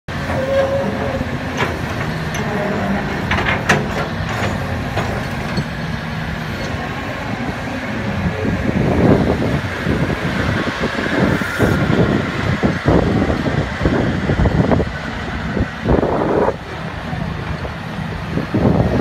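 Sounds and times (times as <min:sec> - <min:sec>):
excavator diesel engine running: 0:00.1 - 0:19.0.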